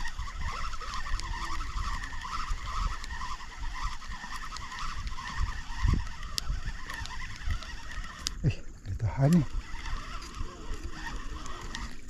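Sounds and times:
fishing reel whirring: 0:00.0 - 0:12.0
wind rumble on microphone: 0:00.0 - 0:12.0.

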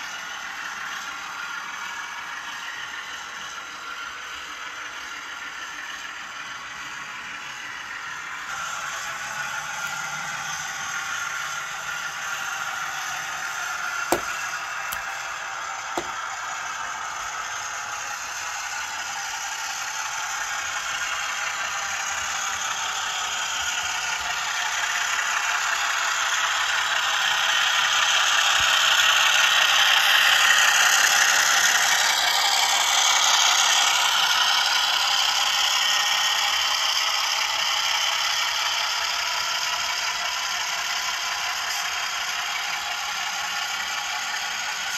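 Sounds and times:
model train wheels clattering: 0:07.2 - 0:16.7.

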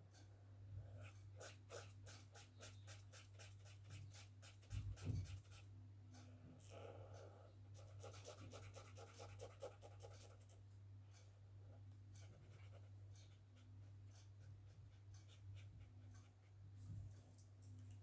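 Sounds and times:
steady low hum: 0:00.0 - 0:18.0
marker scratching on paper: 0:01.0 - 0:05.6, 0:07.8 - 0:10.6, 0:12.2 - 0:16.5.

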